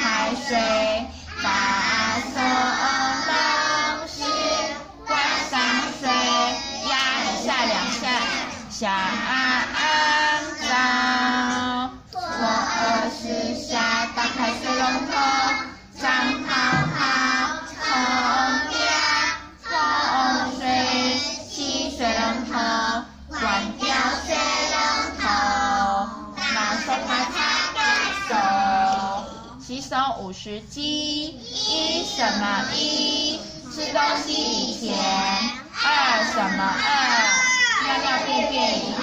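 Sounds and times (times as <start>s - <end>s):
children singing together: 0.0s - 29.6s, 31.3s - 39.0s.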